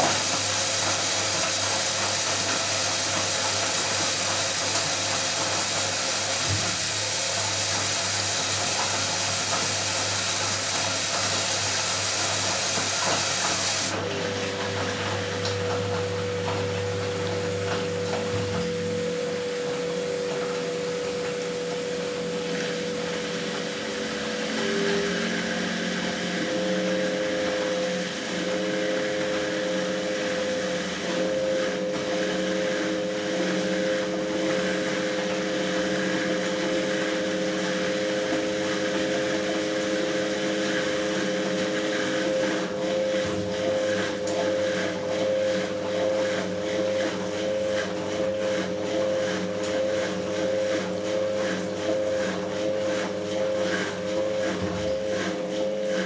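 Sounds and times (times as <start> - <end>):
washing machine running: 0.0 - 56.0.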